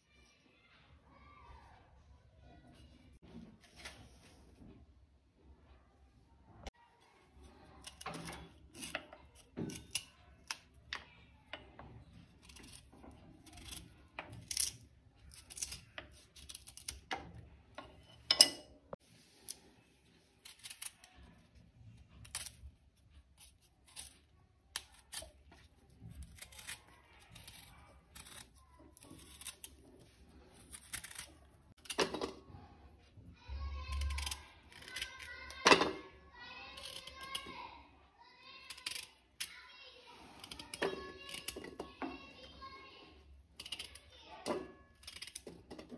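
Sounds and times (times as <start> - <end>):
kitchen utensils and dishes clattering: 17.8 - 19.0, 31.9 - 32.5.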